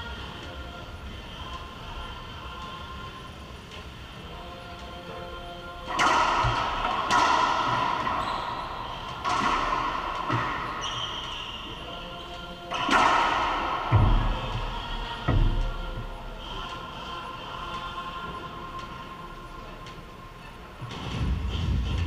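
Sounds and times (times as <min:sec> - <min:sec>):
racquetball cracking off racquets and walls: 0:05.9 - 0:15.9.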